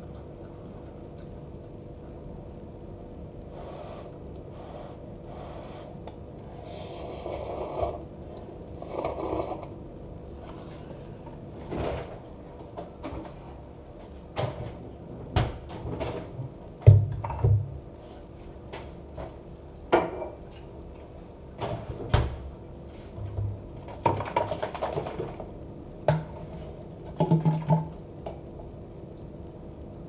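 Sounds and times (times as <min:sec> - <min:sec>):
objects knocking and clattering: 0:27.1 - 0:27.9.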